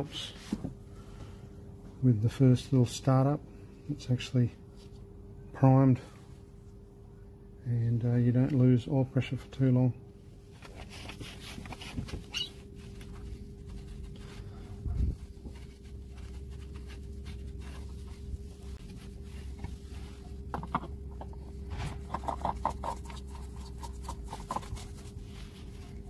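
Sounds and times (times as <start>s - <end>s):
steady faint hum: 0.0s - 26.0s
short high squeaks: 12.3s - 12.6s
oil filter handling clicks and scrapes: 19.4s - 25.0s.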